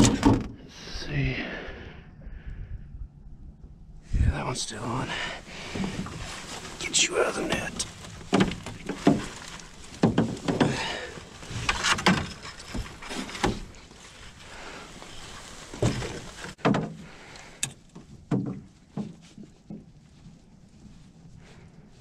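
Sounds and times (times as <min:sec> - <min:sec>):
knocks and thumps on boat floor: 0:07.5 - 0:13.7, 0:15.8 - 0:17.0, 0:18.0 - 0:19.9.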